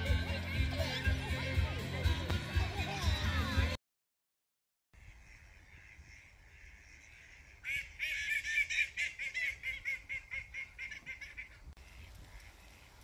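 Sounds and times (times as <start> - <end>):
waterfowl nasal calls: 5.0 - 13.0.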